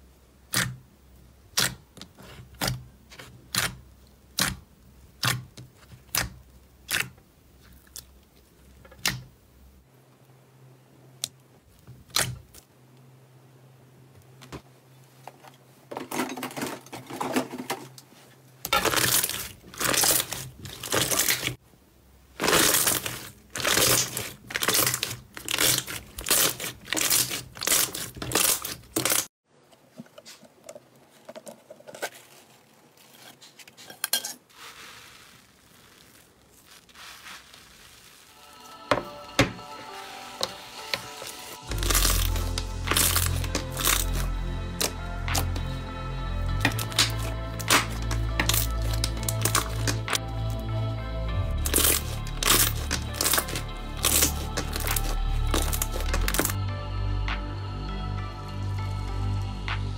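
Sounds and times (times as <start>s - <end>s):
slime squelching and crackling: 1.5s - 9.3s, 18.7s - 21.6s, 22.3s - 29.3s, 34.5s - 38.7s, 40.9s - 45.7s, 46.6s - 50.6s, 51.4s - 56.6s.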